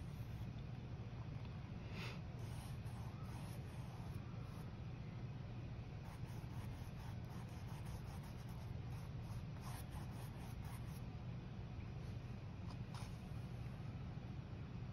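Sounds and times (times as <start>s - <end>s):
steady low hum: 0.0s - 14.9s
paintbrush scratching on canvas: 2.4s - 4.2s, 6.1s - 11.0s.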